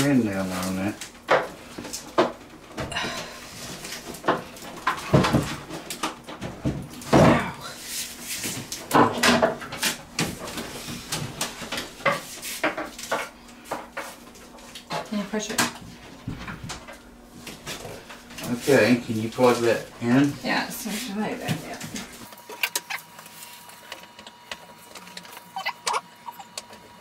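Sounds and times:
knocks and bumps of tv being handled: 4.0s - 7.6s, 8.5s - 13.2s, 15.6s - 16.9s.

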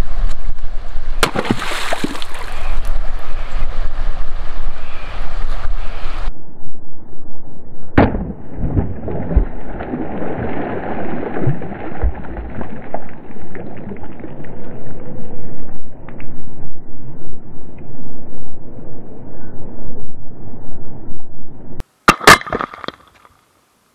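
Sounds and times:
rock splashing into water: 1.2s - 2.6s, 8.0s - 13.2s, 22.1s - 23.3s
water sloshing: 1.2s - 2.6s, 8.7s - 14.3s
low thumps: 7.2s - 10.2s.

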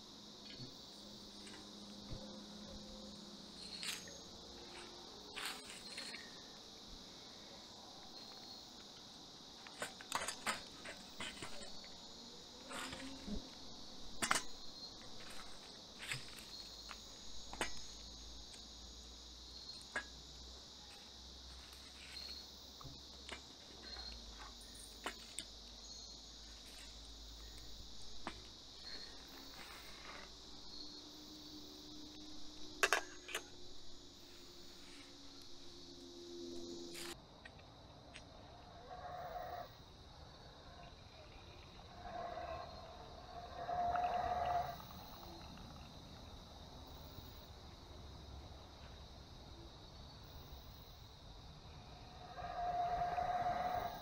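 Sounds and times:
night insects chirring: 0.0s - 54.0s
firewood being handled: 3.6s - 6.4s, 9.6s - 18.7s, 20.8s - 25.6s.

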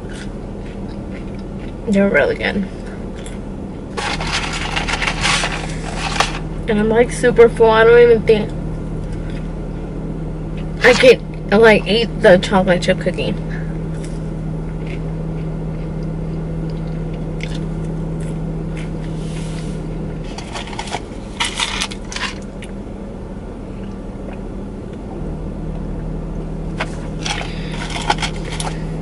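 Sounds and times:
chewing: 0.0s - 1.8s, 14.0s - 19.1s
low hum inside car: 0.0s - 29.0s
paper carton rustling: 4.0s - 6.5s.

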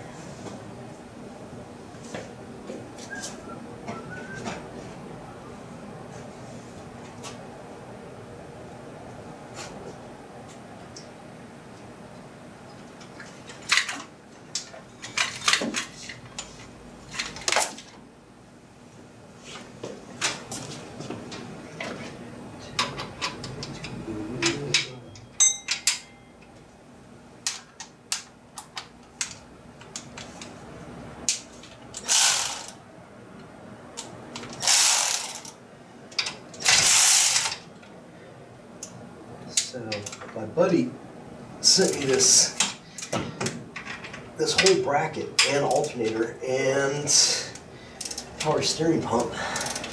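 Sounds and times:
metal tools knocking and clinking: 22.8s - 26.3s.

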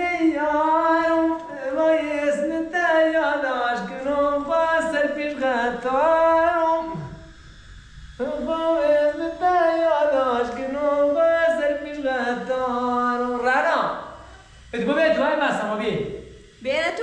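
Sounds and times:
person singing unaccompanied: 0.0s - 7.3s, 8.2s - 14.4s.

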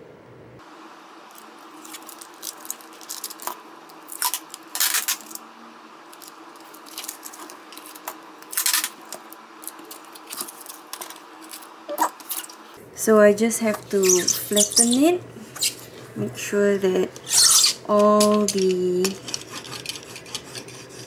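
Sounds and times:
packing tape crinkling: 1.3s - 5.4s, 6.1s - 12.7s
tape ripping off roll: 1.8s - 5.4s, 6.2s - 9.2s.

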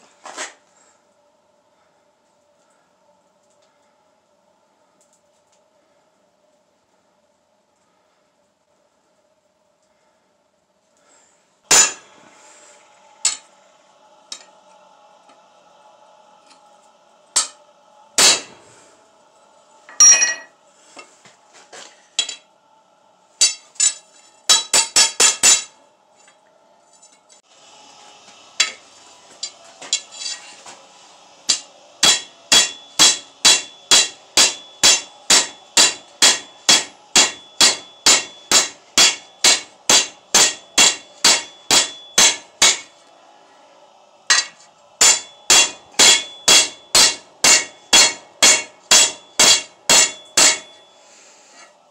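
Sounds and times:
hammer striking steel on anvil: 11.7s - 12.2s, 13.2s - 13.5s, 14.2s - 15.6s, 17.3s - 18.6s, 19.9s - 20.5s, 22.2s - 22.5s, 23.4s - 25.8s, 28.3s - 28.8s, 29.4s - 30.8s, 31.4s - 43.0s, 44.3s - 51.0s.

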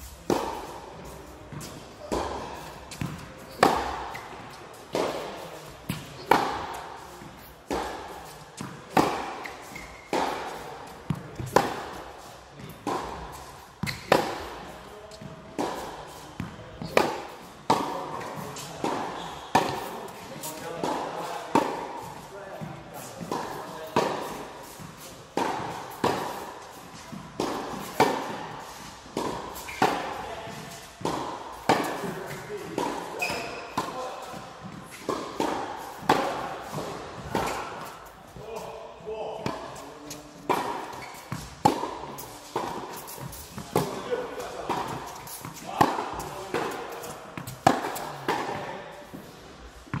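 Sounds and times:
tennis ball hits echoing: 1.6s - 6.8s, 7.7s - 12.0s, 12.6s - 19.9s, 40.5s - 48.6s
tennis ball knocks echoing: 2.0s - 5.3s, 40.5s - 48.6s
shoe squeak: 9.4s - 10.1s, 13.8s - 14.1s, 19.2s - 19.6s, 29.6s - 29.9s, 33.2s - 33.8s, 40.9s - 41.4s.

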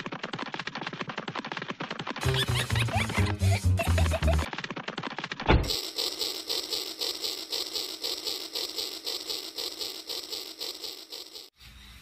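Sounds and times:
toy train clicking and rattling: 5.7s - 11.5s.

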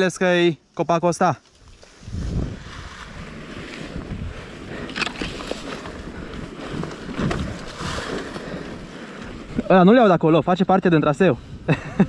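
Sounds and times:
dirt bike rolling: 0.0s - 12.0s
leaves and twigs crackling: 0.6s - 9.9s
wind rumbling on microphone: 1.6s - 12.0s.

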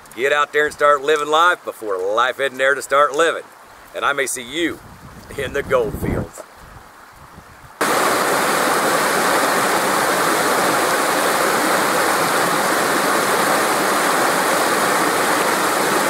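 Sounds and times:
creek rushing over stones: 7.8s - 16.0s.

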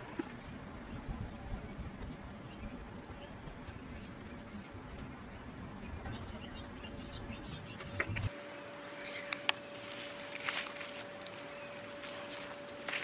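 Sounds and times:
faint steady hum: 0.0s - 13.0s
gloved hands rustling compost: 9.7s - 13.0s.

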